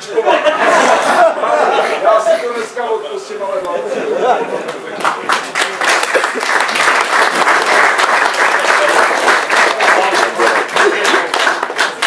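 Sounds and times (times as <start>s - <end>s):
audience clapping: 4.6s - 12.0s.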